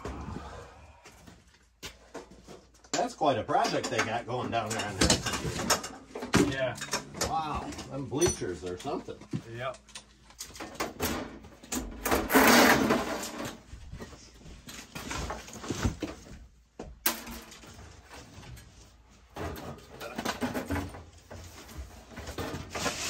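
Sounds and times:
sheet metal clanks and knocks: 3.0s - 9.0s
sheet metal scraping: 12.0s - 13.6s.

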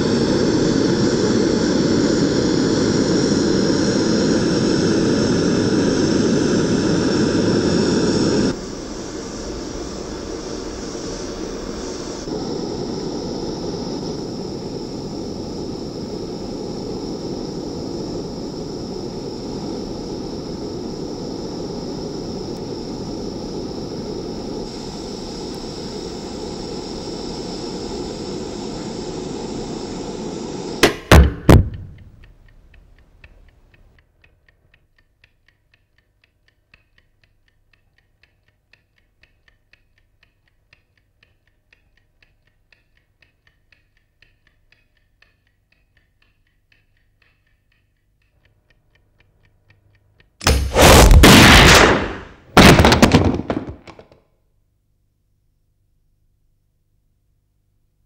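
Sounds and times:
gas burner flame roaring: 0.0s - 33.5s, 50.4s - 54.0s
faint ticking: 31.6s - 50.5s.

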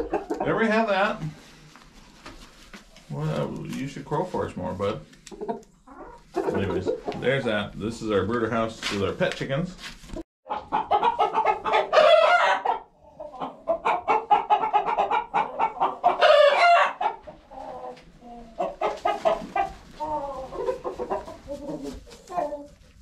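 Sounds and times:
chickens clucking: 0.0s - 1.4s, 2.4s - 8.2s, 10.5s - 23.0s
rooster crowing: 16.2s - 17.0s.

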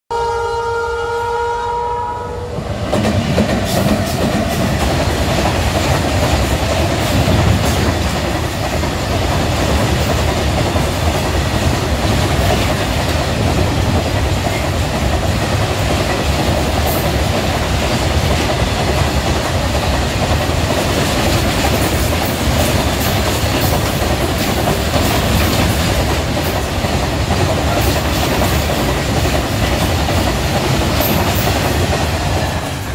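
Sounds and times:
locomotive horn: 0.1s - 2.7s
train rumbling past: 0.2s - 32.9s
wheels on rails: 2.8s - 32.9s.

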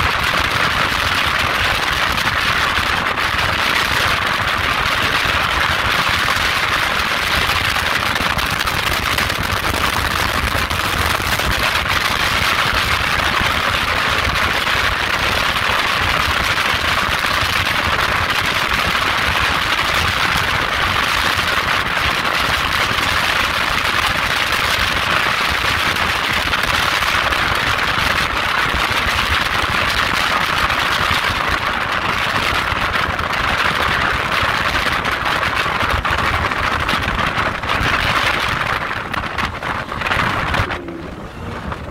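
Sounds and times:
water rushing noise: 37.0s - 41.9s
motorboat engine drone: 38.2s - 41.9s.

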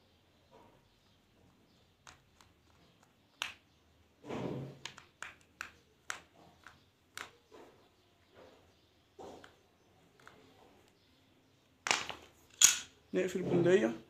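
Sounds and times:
small metal parts clicking: 11.9s - 12.9s.

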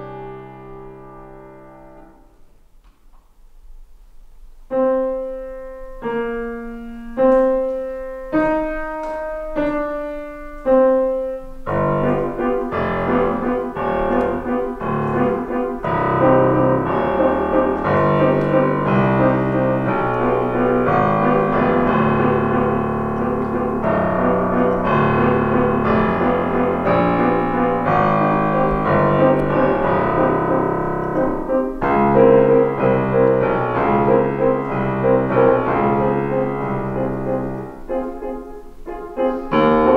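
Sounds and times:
grand piano playing: 0.0s - 2.6s, 3.7s - 39.9s.

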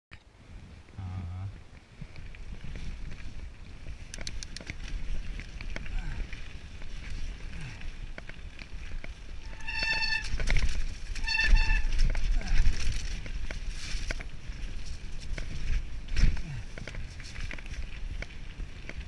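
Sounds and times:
bike tyres rumbling: 0.2s - 19.0s
bike rattling over roots: 1.6s - 19.0s
high-pitched brake squeals: 9.4s - 10.4s, 11.2s - 12.0s.

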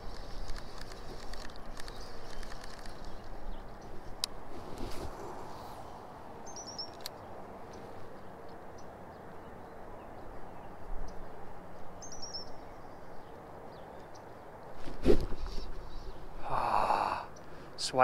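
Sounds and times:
steady outdoor hiss: 0.0s - 18.0s
bird high chirps: 6.4s - 7.0s.

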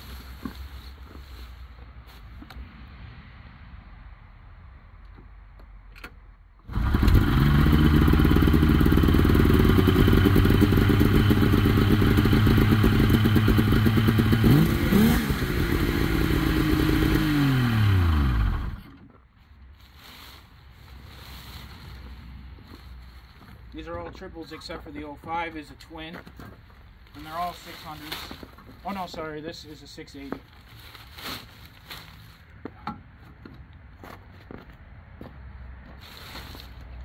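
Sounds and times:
snowmobile engine idling and revving: 6.7s - 19.1s.

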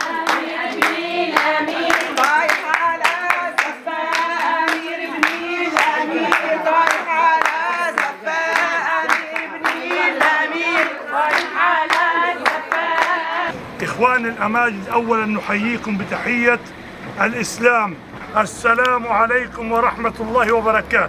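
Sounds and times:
hand clapping: 0.0s - 13.5s
women singing a cappella: 0.0s - 13.6s.

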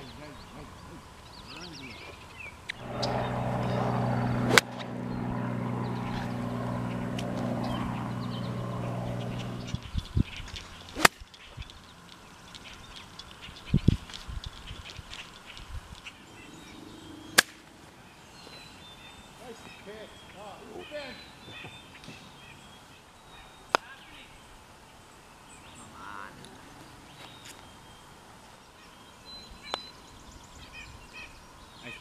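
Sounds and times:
golf club striking ball: 2.8s - 5.2s, 5.8s - 9.8s, 10.9s - 11.2s
small engine running: 2.8s - 10.0s.

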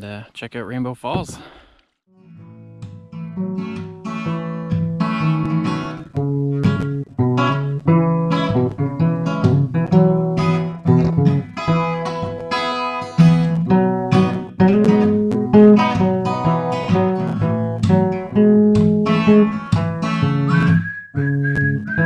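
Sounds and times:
acoustic guitar plucking: 2.2s - 22.0s.

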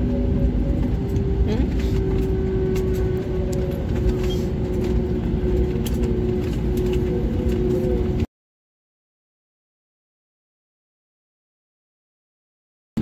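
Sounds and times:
airplane rumbling on runway: 0.0s - 8.3s
low engine hum: 0.0s - 8.3s.

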